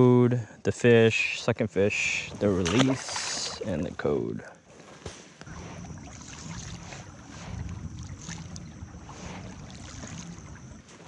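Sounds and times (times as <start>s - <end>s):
wind rumbling on microphone: 5.4s - 11.0s.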